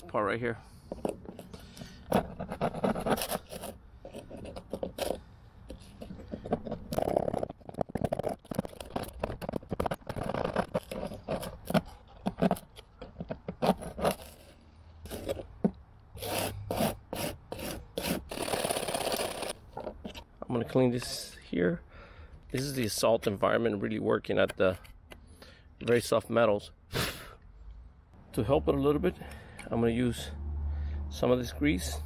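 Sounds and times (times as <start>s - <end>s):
scraper blade scraping metal: 1.3s - 12.8s, 13.5s - 15.5s, 16.2s - 19.6s.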